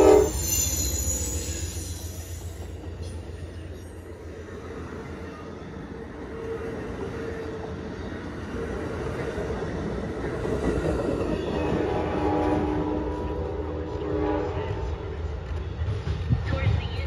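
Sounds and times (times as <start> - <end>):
train horn: 0.0 - 0.8, 11.6 - 15.3
train rumbling along rails: 0.0 - 17.0.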